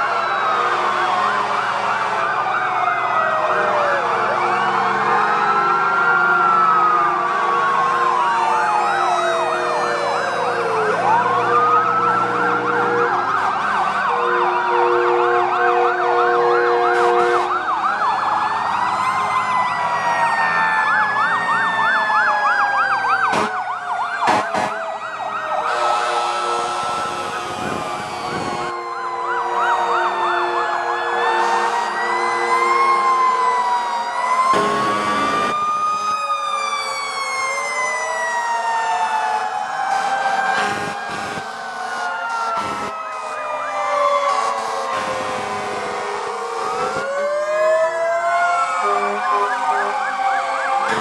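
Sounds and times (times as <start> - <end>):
fire engine sirens wailing and yelping: 0.0 - 51.0
air horn blasts: 14.2 - 17.6, 25.7 - 28.8, 40.6 - 41.6, 42.3 - 43.3, 44.3 - 46.1.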